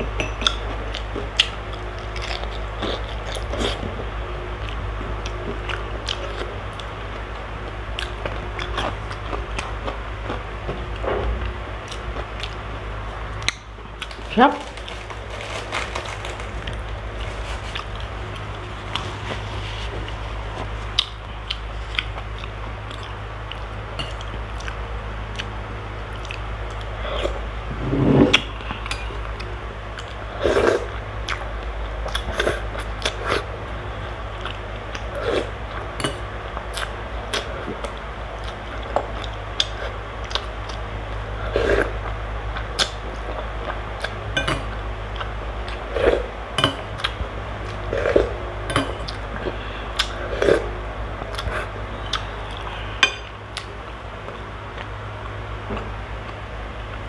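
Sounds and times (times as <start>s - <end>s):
steady low hum: 0.0s - 57.0s
chewing and slurping: 11.8s - 25.5s, 34.3s - 53.7s.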